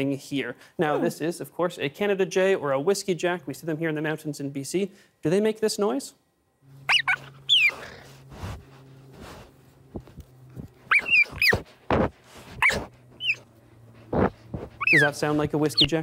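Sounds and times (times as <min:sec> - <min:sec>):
low steady hum: 0:00.0 - 0:16.0
cheetah chirping: 0:06.9 - 0:08.4, 0:10.8 - 0:11.6, 0:12.6 - 0:16.0.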